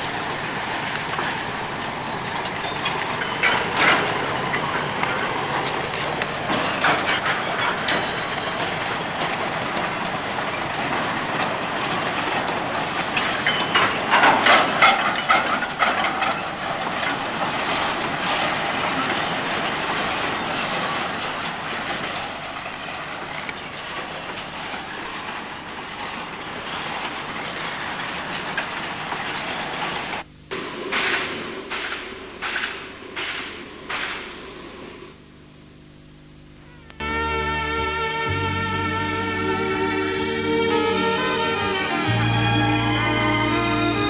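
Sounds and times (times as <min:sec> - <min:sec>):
wheels clacking over rail joints: 0:00.0 - 0:34.6, 0:37.2 - 0:44.0
steam train running: 0:00.0 - 0:35.2, 0:37.0 - 0:44.0
loud metal clanks: 0:00.1 - 0:30.2.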